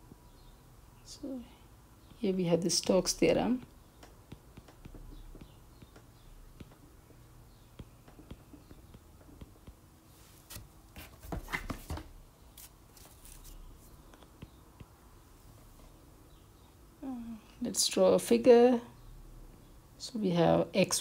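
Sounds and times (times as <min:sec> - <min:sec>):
stylus tapping on glass screen: 0:04.0 - 0:06.8.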